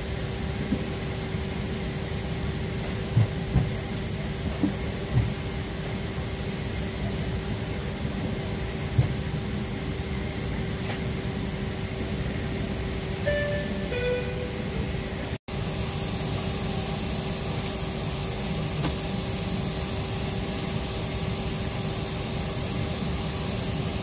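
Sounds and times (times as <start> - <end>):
steady tone: 13.2 - 15.4.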